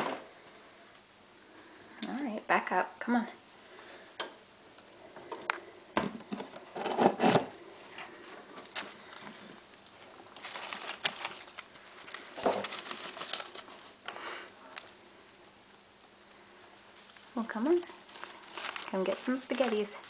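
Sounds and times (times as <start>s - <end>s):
rustling of paper bedding: 8.1s - 14.0s, 17.0s - 20.0s.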